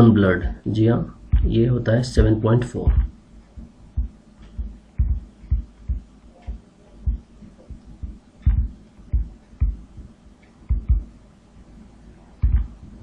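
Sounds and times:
muffled low thumps: 0:01.0 - 0:11.3, 0:12.4 - 0:13.0.

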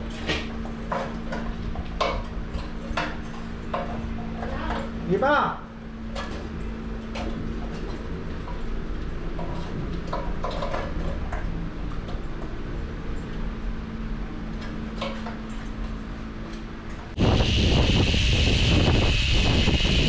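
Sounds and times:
steady low hum: 0:00.0 - 0:20.0
wind noise on microphone: 0:17.2 - 0:20.0.

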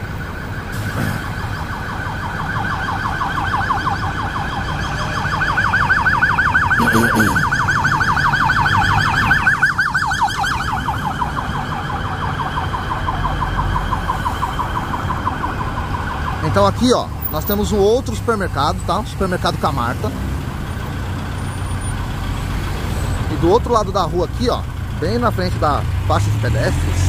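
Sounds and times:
siren yelping: 0:00.0 - 0:18.7
low street traffic noise: 0:00.0 - 0:27.0.

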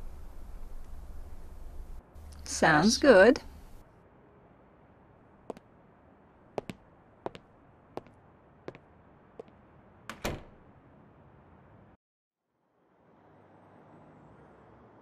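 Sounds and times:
footsteps on a hard floor: 0:06.6 - 0:07.4
door shutting: 0:10.1 - 0:10.6.

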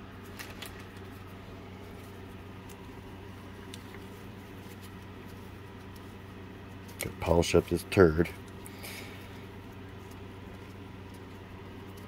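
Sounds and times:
steady low hum: 0:00.0 - 0:12.0
gloved hands handling: 0:00.2 - 0:07.2.

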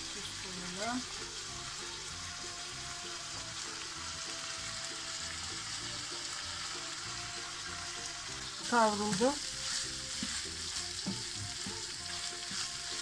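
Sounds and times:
food sizzling in a pan: 0:00.0 - 0:13.0
soft background music: 0:00.0 - 0:13.0
wooden spoon stirring: 0:08.7 - 0:13.0.

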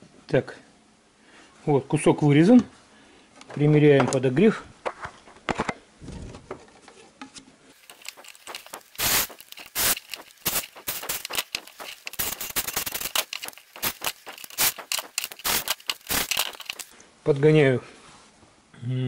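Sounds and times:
clicks scrapes and knocks of tools: 0:06.7 - 0:16.9.

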